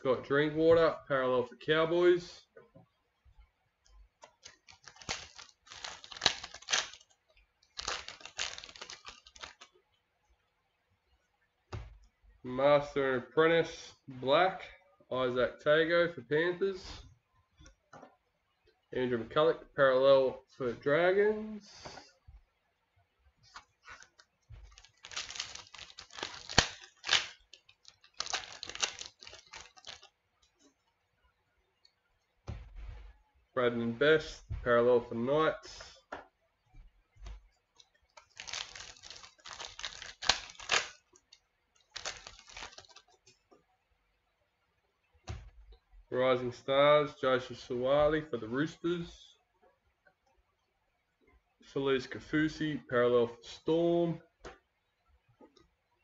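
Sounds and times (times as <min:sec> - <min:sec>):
cards being handled: 0:04.2 - 0:07.1, 0:07.7 - 0:09.7, 0:23.5 - 0:30.1, 0:38.1 - 0:41.0, 0:41.9 - 0:43.1
wrapper crinkling and tearing: 0:04.4 - 0:07.1, 0:07.7 - 0:09.7, 0:23.8 - 0:30.1, 0:38.1 - 0:43.1.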